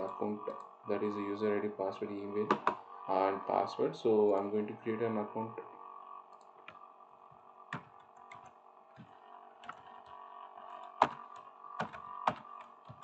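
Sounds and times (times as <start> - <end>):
faint steady hum: 0.0 - 13.0
keyboard and mouse clicks: 7.7 - 13.0.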